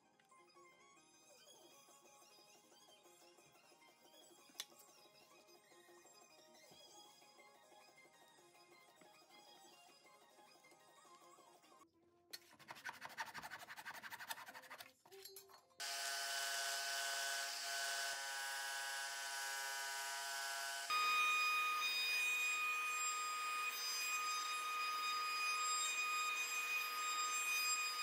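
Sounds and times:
power tool motor whine: 0:15.8 - 0:28.0
router whining: 0:15.8 - 0:28.0.

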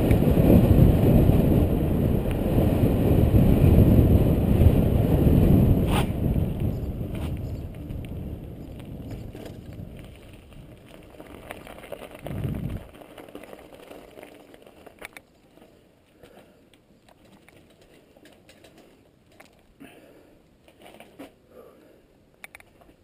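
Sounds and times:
wind buffeting microphone: 0:00.0 - 0:13.0
bicycle clicks and rattles: 0:05.9 - 0:19.8, 0:20.6 - 0:21.4, 0:22.4 - 0:23.0.

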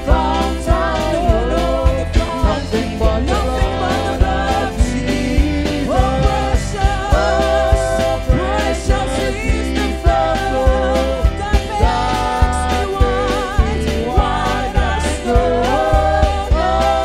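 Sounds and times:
backing singers: 0:00.0 - 0:17.0
drums playing steady beat: 0:00.0 - 0:17.0
electric bass: 0:00.0 - 0:17.0
woman singing lead vocal: 0:00.0 - 0:17.0.

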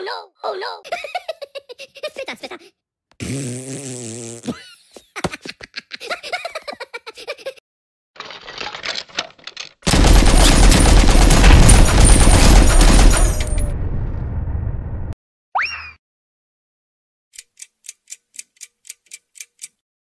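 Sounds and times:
squeaky cartoon voice: 0:00.0 - 0:01.0
cartoon machine-gun fire: 0:09.9 - 0:13.8.

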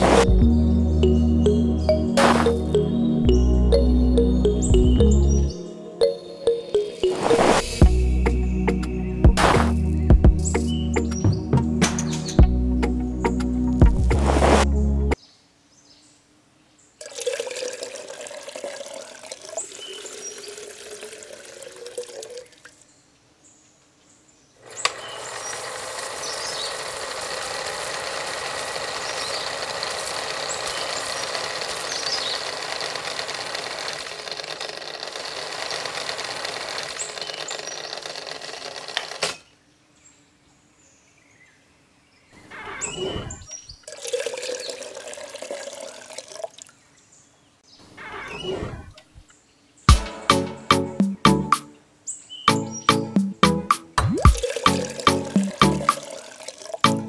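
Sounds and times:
water pouring: 0:17.0 - 0:22.8, 0:43.8 - 0:46.8, 0:54.0 - 0:56.9
small mixer motor turning: 0:24.6 - 0:39.4.

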